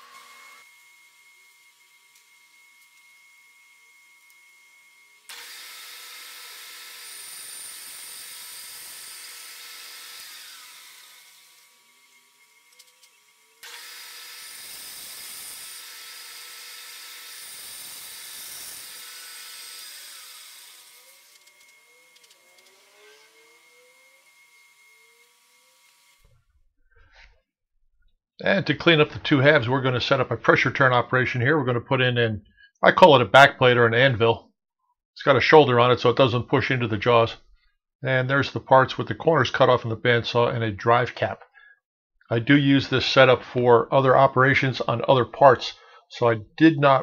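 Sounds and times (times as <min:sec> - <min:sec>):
bandsaw cutting plastic: 0:00.0 - 0:27.4.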